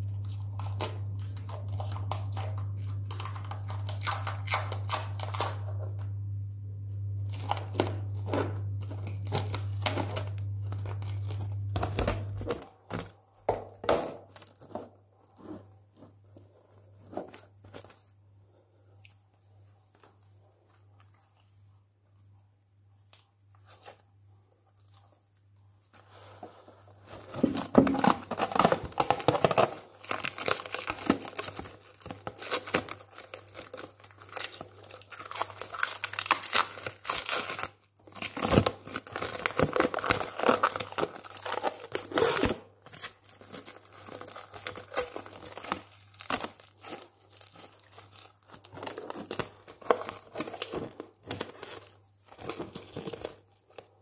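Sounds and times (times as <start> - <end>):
cling film crinkling and tearing: 0.0 - 6.0, 7.2 - 13.2, 22.9 - 54.0
faint low hum: 0.0 - 54.0.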